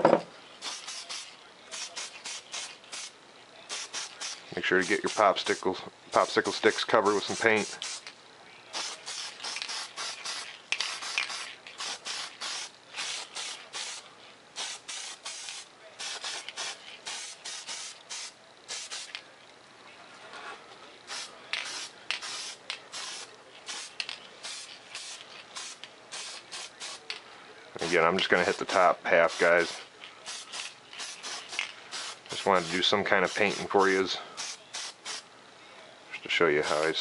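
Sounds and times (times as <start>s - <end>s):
spray paint can hissing: 0.6s - 3.1s, 3.7s - 5.6s, 6.5s - 8.1s, 8.7s - 14.0s, 14.6s - 19.2s, 21.1s - 27.1s, 29.2s - 35.2s.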